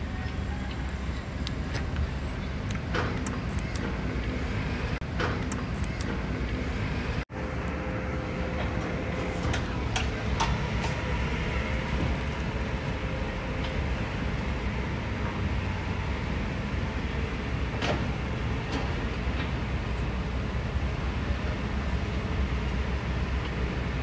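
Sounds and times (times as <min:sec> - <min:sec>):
diesel engine rumbling: 0:00.0 - 0:24.0
knocks and clanks: 0:02.8 - 0:04.3, 0:08.5 - 0:11.3.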